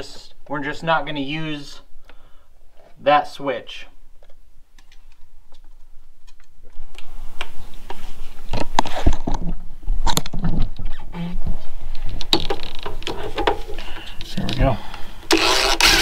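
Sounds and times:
cordless drill driving screws: 15.3 - 16.0.

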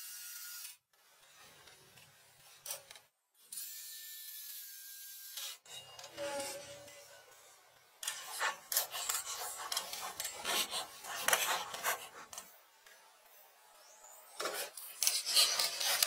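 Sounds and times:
hand tool scraping hard surface: 8.0 - 12.5.

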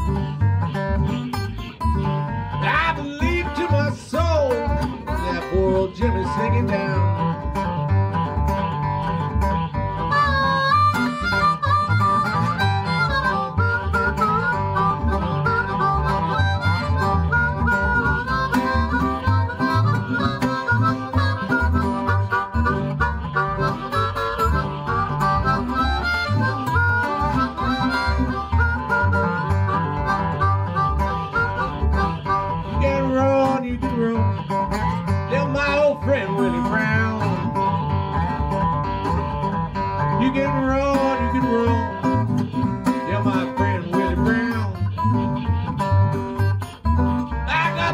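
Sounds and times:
acoustic guitar: 0.0 - 47.9
blues harmonica: 0.0 - 47.9
plucked washtub bass: 0.0 - 47.9.

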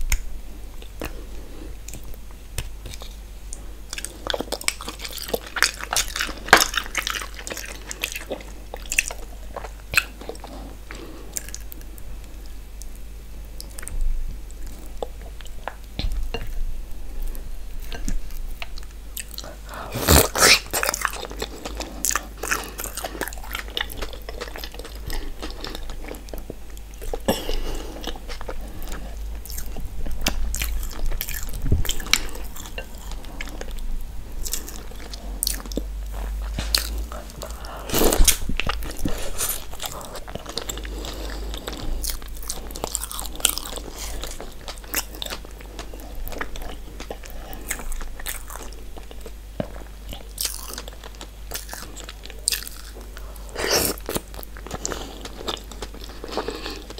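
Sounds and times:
person chewing food: 0.0 - 13.0, 13.6 - 56.9.

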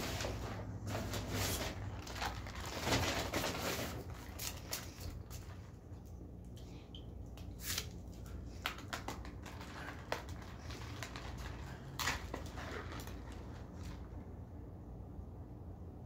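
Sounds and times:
paper straw wrapper rustling: 0.0 - 6.0, 7.5 - 14.2.

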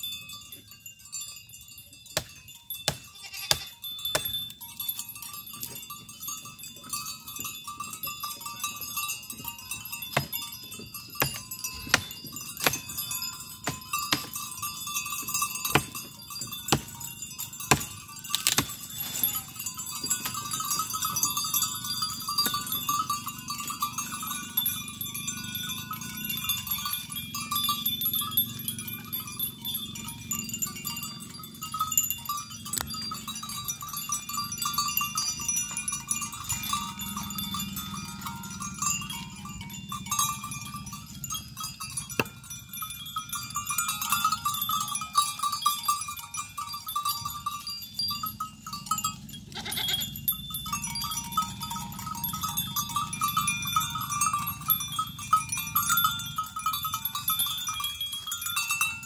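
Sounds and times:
goat bleating: 3.1 - 3.8, 49.5 - 50.1
leaves rustling: 17.7 - 21.2.

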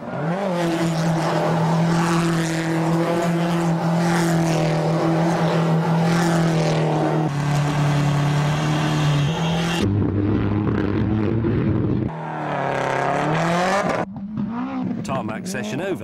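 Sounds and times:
rally car engine revving: 0.0 - 15.8.

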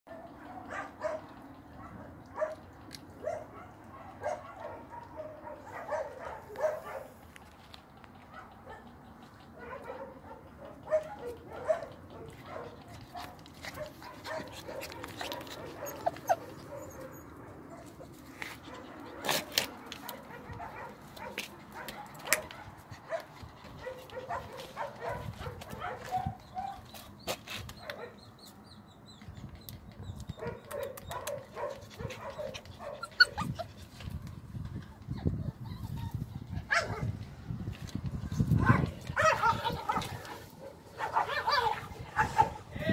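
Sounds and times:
puppy yipping: 0.1 - 7.1, 8.2 - 18.0, 30.2 - 33.8, 34.8 - 37.1, 38.7 - 40.4, 41.0 - 42.6
puppy whimpering: 15.0 - 17.4, 32.4 - 34.1, 34.8 - 36.6
dog yipping and whining: 15.2 - 17.8, 30.3 - 33.8, 34.9 - 37.1, 41.0 - 42.5.

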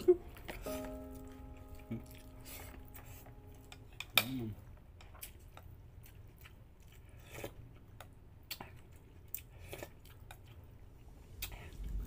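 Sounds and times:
person chewing and mouth smacks: 0.0 - 12.0.

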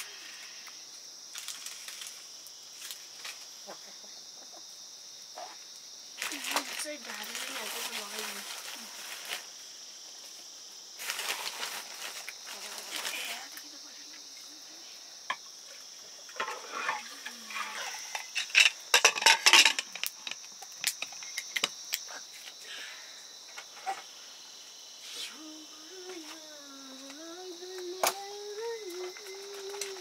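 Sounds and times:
insects chirring: 0.0 - 30.0
rustling: 1.3 - 3.5, 6.2 - 13.6
utensils clinking against metal pots: 16.4 - 20.4.

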